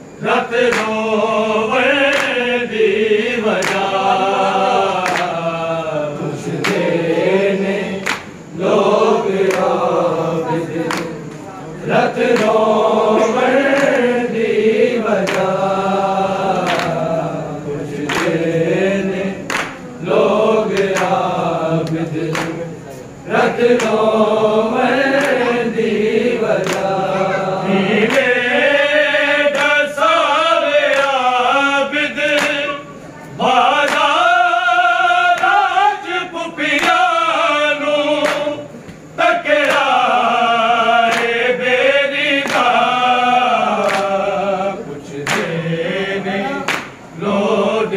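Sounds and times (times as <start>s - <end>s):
men chanting together: 0.0s - 47.9s
chest-beating slaps: 0.7s - 1.0s, 3.6s - 3.9s, 5.0s - 5.3s, 6.6s - 6.8s, 8.0s - 8.3s, 18.1s - 18.4s, 19.5s - 19.8s, 21.8s - 22.6s.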